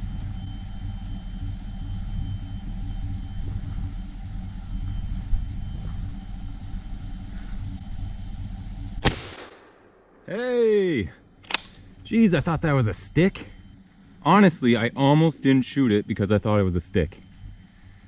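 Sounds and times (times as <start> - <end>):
vehicle engine idling: 0.0 - 9.1
loud gunshot: 9.0 - 9.9.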